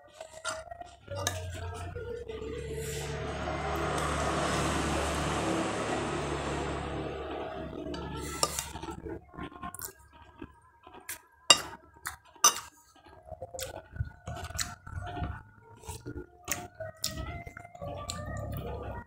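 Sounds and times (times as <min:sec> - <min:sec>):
cutlery clinking on a plate: 0:11.5 - 0:11.8, 0:12.4 - 0:12.8.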